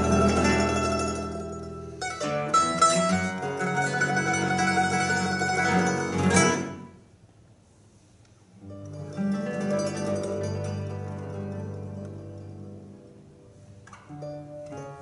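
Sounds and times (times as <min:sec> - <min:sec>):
guitar mandolin and bass trio: 0:00.0 - 0:07.0, 0:08.6 - 0:15.0.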